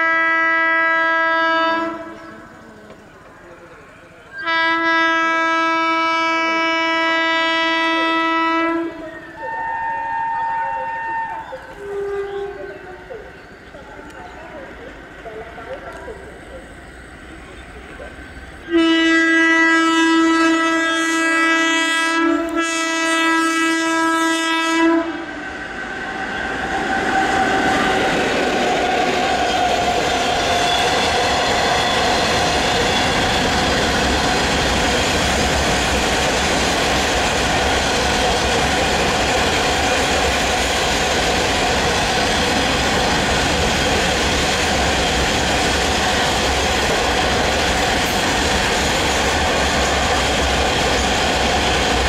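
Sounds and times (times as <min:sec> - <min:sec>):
locomotive horn blast: 0:00.0 - 0:02.3, 0:04.4 - 0:12.6, 0:18.7 - 0:28.1
train wheels rumbling on rail: 0:00.0 - 0:52.0.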